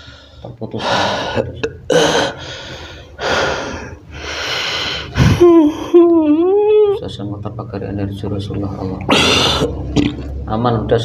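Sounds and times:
man breathing hard: 0.0 - 5.9.

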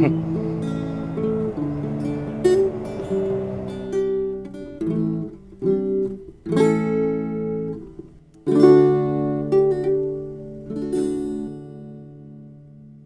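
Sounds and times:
acoustic guitar strummed chords: 0.0 - 13.0.

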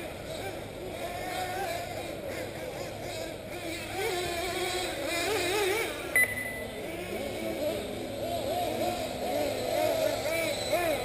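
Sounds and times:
rc car engines racing: 0.0 - 11.0
short high beep: 6.2 - 6.7.

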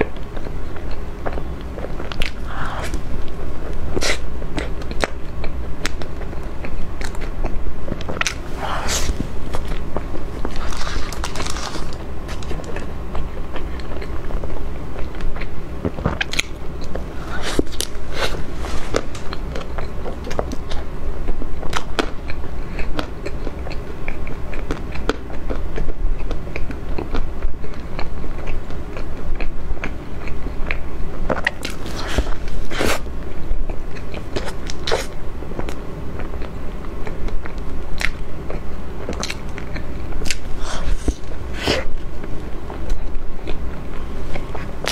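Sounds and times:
biting and chewing pastry: 0.0 - 44.9
crust clicks and crackles: 5.9 - 20.8.

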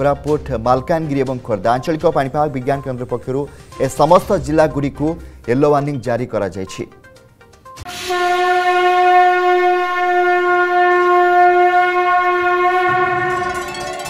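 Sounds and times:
conch shell blown: 7.9 - 13.7.

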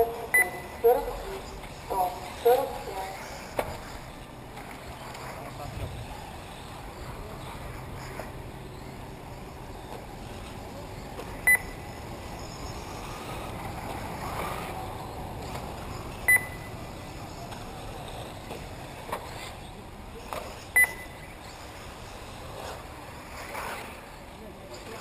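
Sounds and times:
rc car motors and tyres hissing: 1.2 - 25.0
high electronic beeps: 11.4 - 12.8, 16.3 - 16.7, 20.8 - 21.4.

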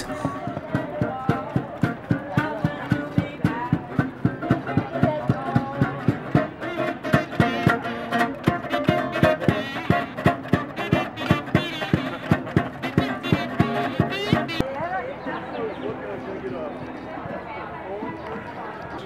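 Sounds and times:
acoustic guitar strumming: 5.8 - 14.6.

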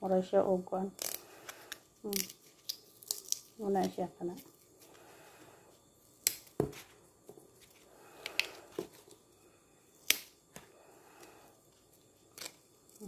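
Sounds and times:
lemongrass stalks snapping: 6.2 - 6.6, 10.0 - 10.3.

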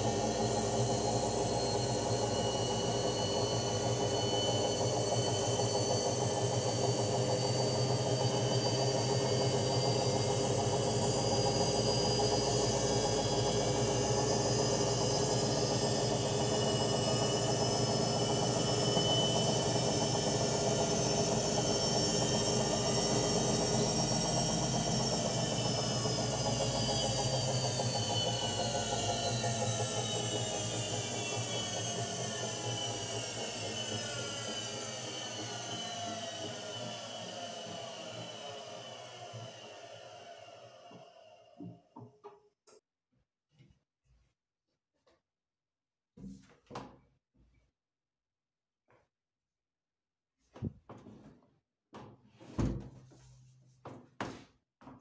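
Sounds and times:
washing machine spin cycle: 0.0 - 42.0.

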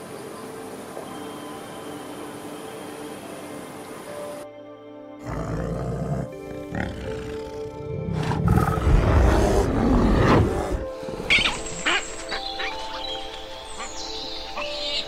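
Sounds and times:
background music with sustained tones: 0.0 - 15.0
bear growling: 5.2 - 11.4.

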